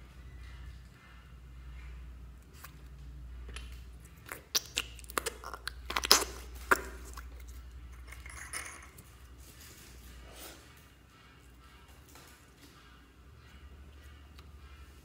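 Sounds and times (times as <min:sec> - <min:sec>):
slime squelching: 0:02.5 - 0:08.5.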